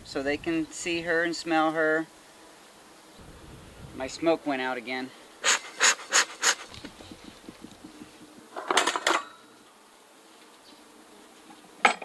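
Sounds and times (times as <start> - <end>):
honey bees humming: 0.0 - 11.9
bellows puffing air: 3.2 - 4.5, 5.1 - 8.9.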